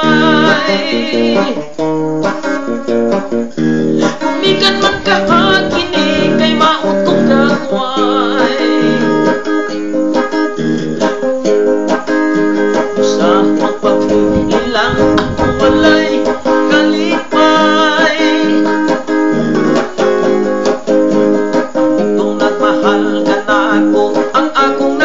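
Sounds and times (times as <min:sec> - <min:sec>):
electric guitar melody with bends: 0:00.0 - 0:25.0.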